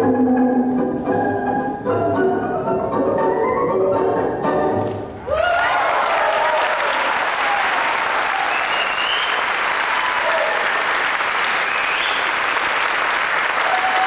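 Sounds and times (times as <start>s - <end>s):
audience clapping and cheering: 5.2s - 14.0s.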